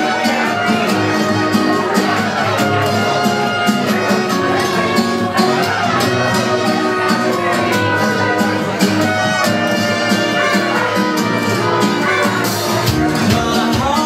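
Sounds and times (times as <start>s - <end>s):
live dance band playing: 0.0s - 14.0s
steady percussion beat: 10.8s - 14.0s.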